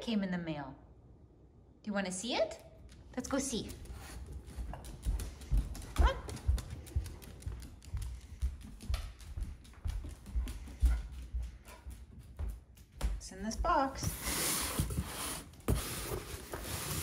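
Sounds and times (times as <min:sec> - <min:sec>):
footsteps on hard floor: 0:03.5 - 0:17.0.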